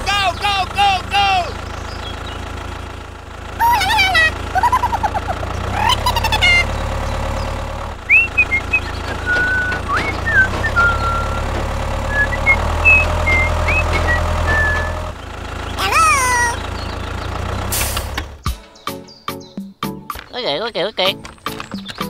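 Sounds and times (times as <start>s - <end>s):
tractor engine sound: 0.0s - 18.5s, 20.1s - 22.0s
squeaky chirps: 8.1s - 17.4s, 20.3s - 22.0s.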